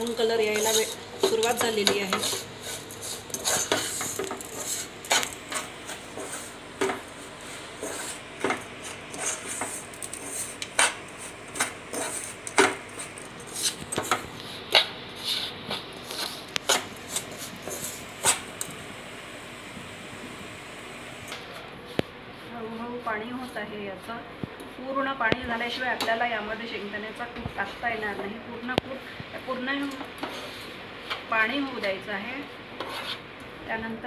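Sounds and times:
spoon scraping sugar in saucepan: 0:00.4 - 0:06.6, 0:07.3 - 0:14.2, 0:32.8 - 0:33.2.

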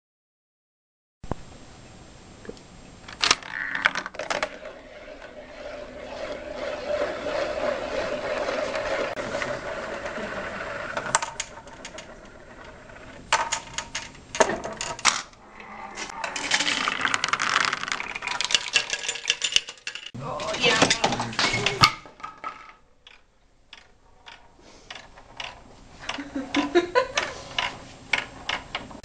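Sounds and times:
clattering knocks: 0:03.1 - 0:15.3
steady rolling whir: 0:04.0 - 0:29.0.

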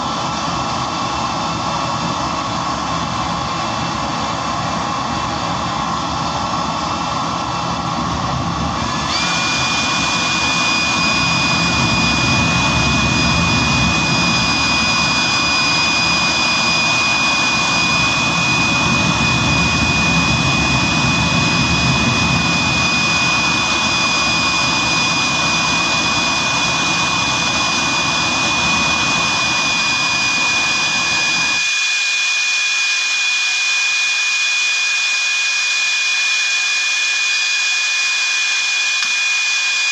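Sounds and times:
jet engine combustion rumble: 0:00.0 - 0:31.5
jet engine high whine: 0:00.0 - 0:39.9.

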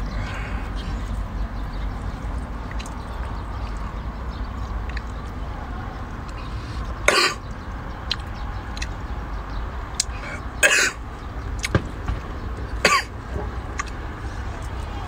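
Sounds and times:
man coughing and clearing throat: 0:07.1 - 0:07.4, 0:10.6 - 0:11.0, 0:12.8 - 0:13.1.

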